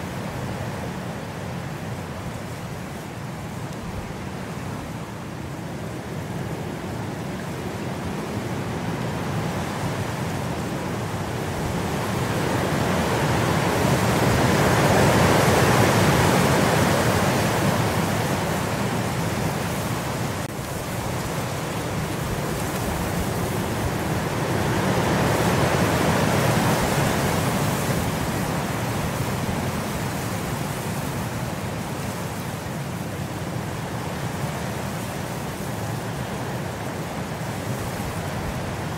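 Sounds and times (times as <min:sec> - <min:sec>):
rain hiss and patter: 0:00.0 - 0:38.9.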